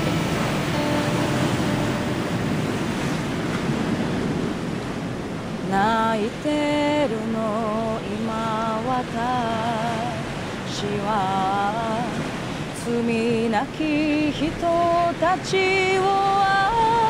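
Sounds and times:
ocean surf rushing: 0.0 - 17.0
woman singing: 5.6 - 17.0.

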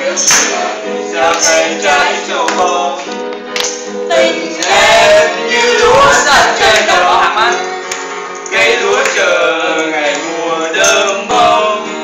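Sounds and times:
group singing: 0.0 - 12.0
strummed acoustic guitar: 0.0 - 12.0
sharp percussive hits: 0.2 - 0.7.

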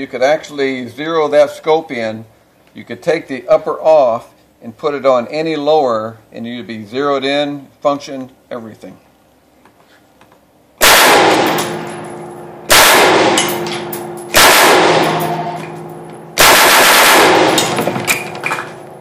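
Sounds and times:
rifle shots echoing: 10.8 - 19.0.

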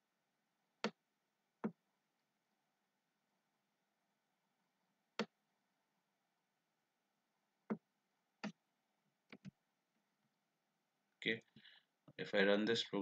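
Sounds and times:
computer mouse clicking: 9.3 - 9.6.

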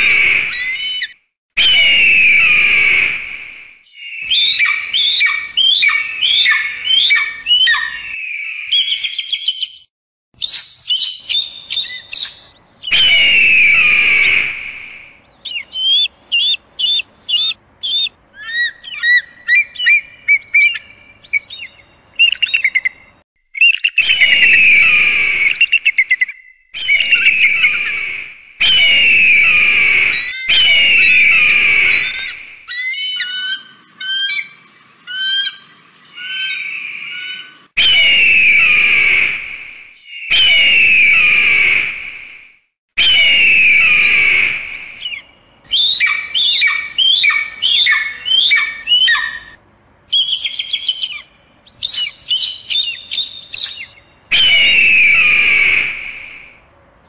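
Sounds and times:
eagle chattering chirps: 15.4 - 22.9, 44.8 - 49.5, 50.1 - 54.7.

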